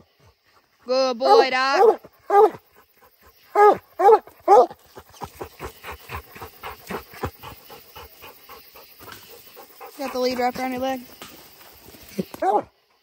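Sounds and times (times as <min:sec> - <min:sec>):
dog barking: 0:01.3 - 0:02.6, 0:03.5 - 0:04.8, 0:12.4 - 0:12.7
dog panting rapidly: 0:04.8 - 0:11.1.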